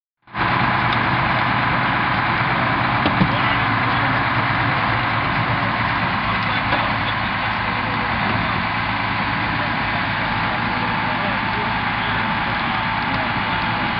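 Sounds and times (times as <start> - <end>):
power unit engine drone: 0.2 - 13.9.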